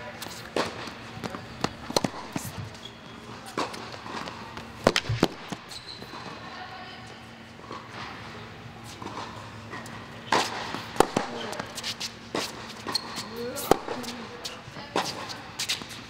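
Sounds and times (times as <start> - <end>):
racket striking tennis ball: 0.2 - 2.9, 3.5 - 6.4, 9.0 - 16.0
tennis ball bouncing: 0.2 - 6.5, 8.9 - 16.0.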